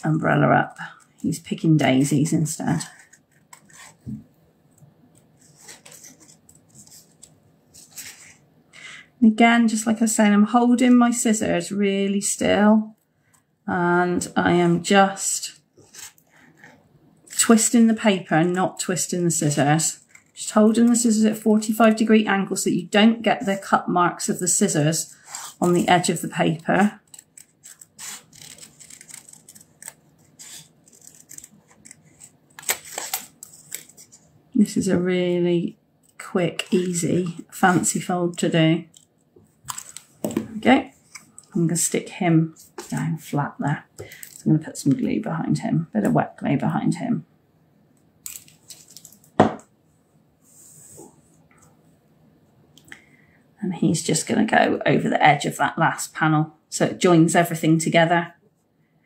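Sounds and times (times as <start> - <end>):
paper handling: 25.3 - 34.2
scissors snipping cardstock: 25.6 - 33.9.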